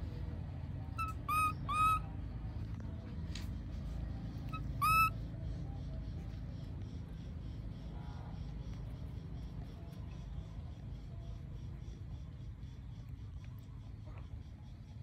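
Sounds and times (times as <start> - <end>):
low background rumble: 0.0 - 15.0
baby monkey coo calls: 0.9 - 2.1, 4.5 - 5.2.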